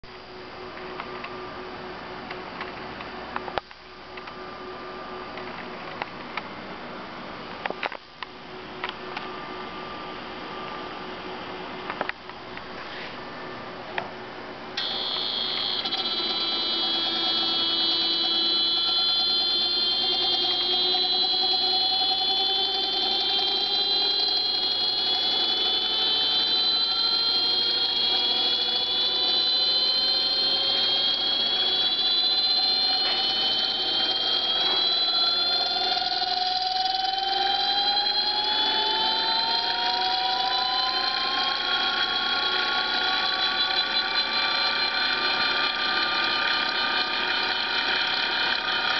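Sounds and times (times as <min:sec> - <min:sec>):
electric motor whining: 0:14.8 - 0:48.9.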